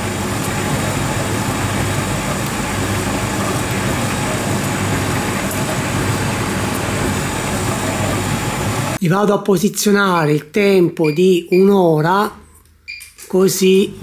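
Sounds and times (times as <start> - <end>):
dryer drum whirring: 0.0 - 9.0.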